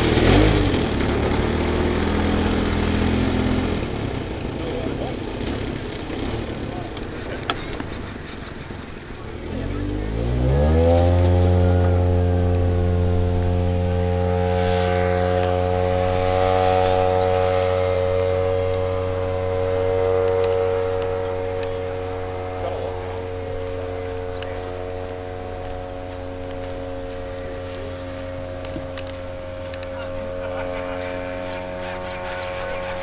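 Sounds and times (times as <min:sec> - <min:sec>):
model plane engine droning: 0:00.0 - 0:33.0.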